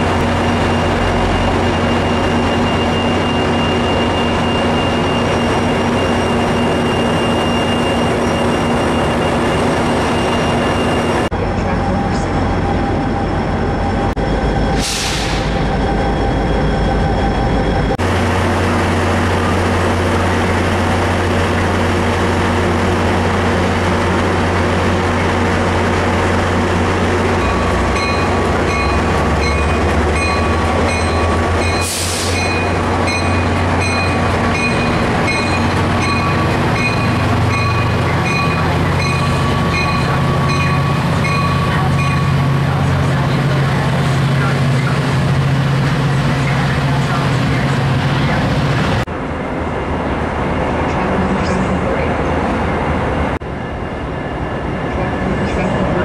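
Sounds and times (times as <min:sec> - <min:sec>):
train pulling away: 0:00.0 - 0:56.0
locomotives idling: 0:14.8 - 0:53.4
bell ringing: 0:27.4 - 0:42.8.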